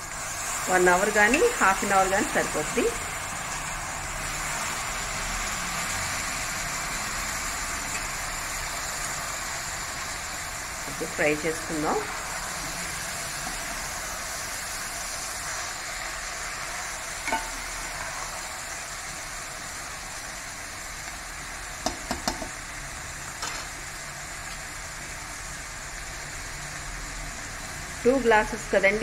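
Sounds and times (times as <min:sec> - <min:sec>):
rice frying in oil: 0:00.0 - 0:29.0
steel spoon clinking against pan: 0:17.2 - 0:17.6.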